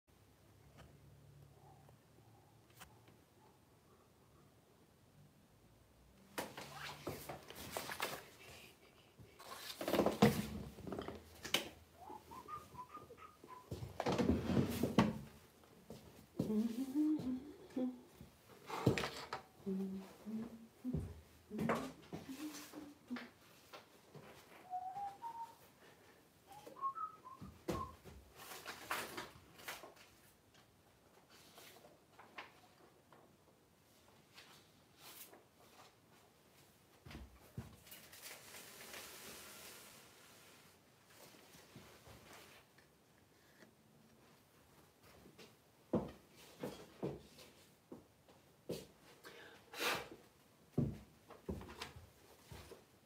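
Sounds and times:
person whistling a tune: 0:12.0 - 0:13.8, 0:24.6 - 0:25.7, 0:26.5 - 0:28.0.

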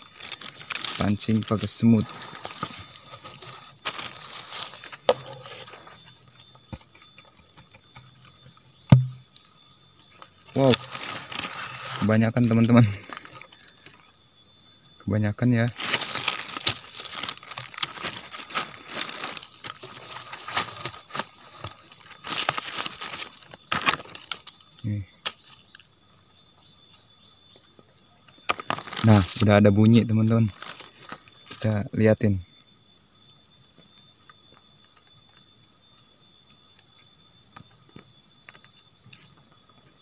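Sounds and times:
twig scraping dry soil: 0:00.0 - 0:08.2, 0:10.5 - 0:13.6
cricket scrabbling in burrow: 0:00.0 - 0:40.0.

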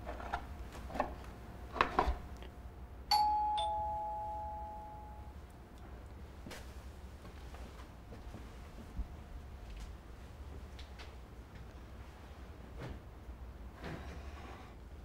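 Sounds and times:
two-tone doorbell chime: 0:03.1 - 0:05.4.

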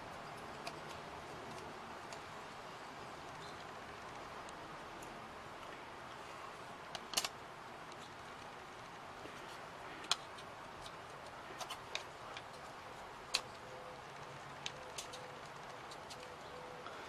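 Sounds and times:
faint steady hiss: 0:00.0 - 0:17.0
wooden pieces clicking together: 0:06.9 - 0:08.5, 0:14.2 - 0:17.0.

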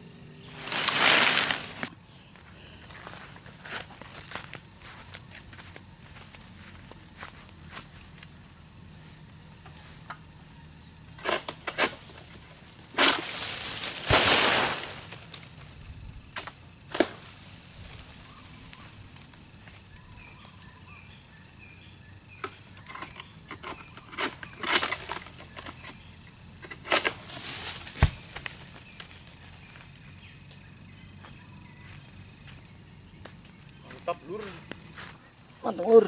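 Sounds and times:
high insect buzz: 0:00.0 - 0:36.0
sickle blade hacking palm fronds: 0:00.6 - 0:01.9, 0:11.2 - 0:12.2, 0:12.9 - 0:15.4, 0:16.9 - 0:17.2, 0:26.7 - 0:28.6.

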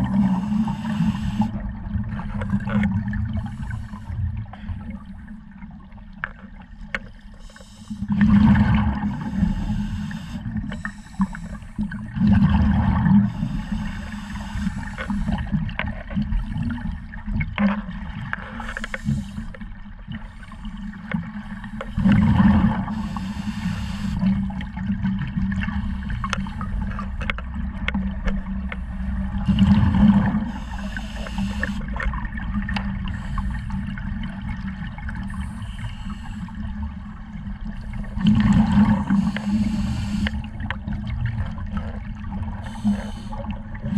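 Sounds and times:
gurgling exhaled bubbles: 0:00.0 - 0:05.9, 0:08.0 - 0:10.8, 0:11.8 - 0:19.3, 0:20.0 - 0:43.9
regulator hiss: 0:00.2 - 0:01.5, 0:09.1 - 0:11.7, 0:13.3 - 0:15.4, 0:22.9 - 0:24.2, 0:30.5 - 0:31.8, 0:39.0 - 0:40.4, 0:42.6 - 0:43.5.

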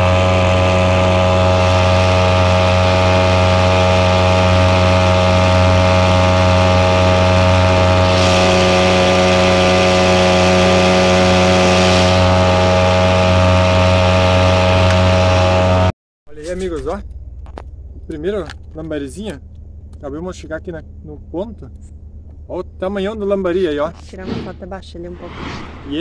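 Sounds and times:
outboard motor running: 0:00.0 - 0:23.0.

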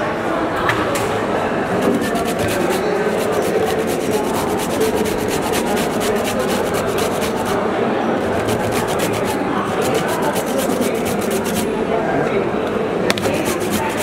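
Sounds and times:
grater rasping: 0:01.8 - 0:07.6, 0:08.2 - 0:11.7, 0:13.2 - 0:14.0.

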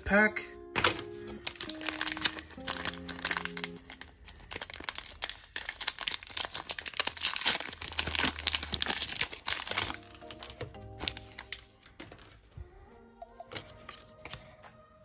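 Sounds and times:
foil wrapper being torn open: 0:01.0 - 0:12.4.

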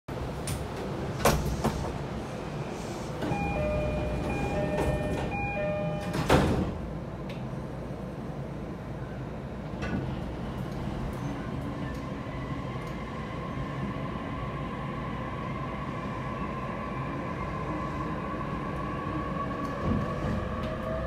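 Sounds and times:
train hum: 0:00.1 - 0:21.0
electronic train door chime: 0:03.2 - 0:06.6
sliding doors thudding shut: 0:03.2 - 0:06.8.

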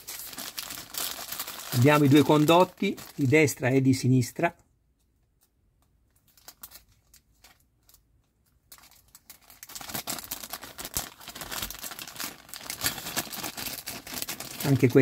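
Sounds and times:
plastic bag crinkling: 0:00.0 - 0:03.6, 0:06.2 - 0:15.0.

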